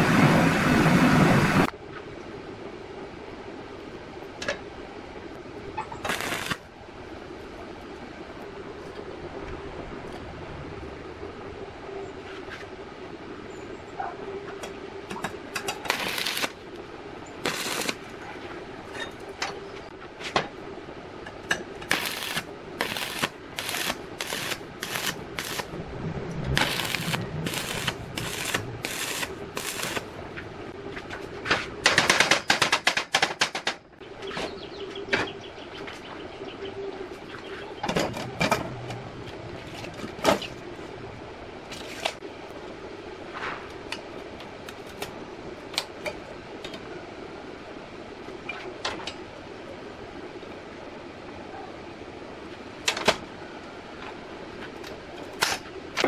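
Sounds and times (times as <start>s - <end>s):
steady hum: 0.0s - 32.2s
welding arc crackling: 6.0s - 6.7s, 15.6s - 16.6s, 17.4s - 18.1s, 21.8s - 30.4s.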